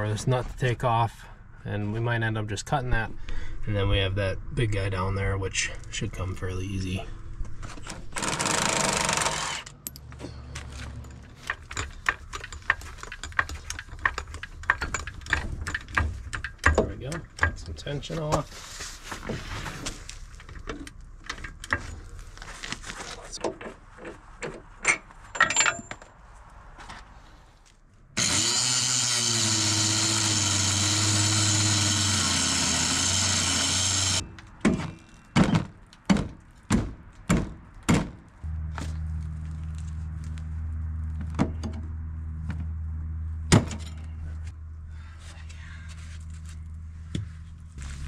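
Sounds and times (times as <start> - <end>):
metal tools clicking and clanking: 9.6 - 17.9, 24.8 - 26.1
angle grinder cutting metal: 28.2 - 34.2
steady low hum: 38.4 - 48.0.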